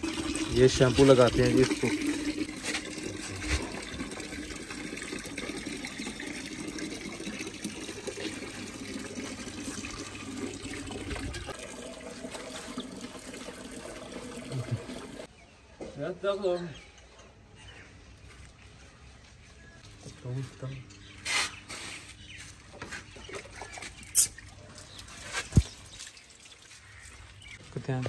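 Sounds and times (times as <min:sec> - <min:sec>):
water splashing from hose on concrete: 0:00.0 - 0:15.3, 0:23.6 - 0:28.0.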